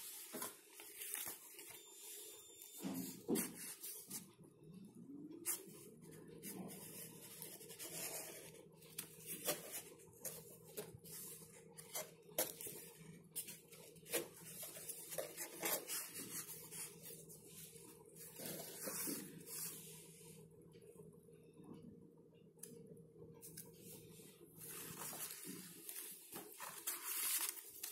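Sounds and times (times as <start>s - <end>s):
cardstock rustling and scraping: 0.0s - 1.8s, 6.4s - 19.8s, 24.6s - 27.9s.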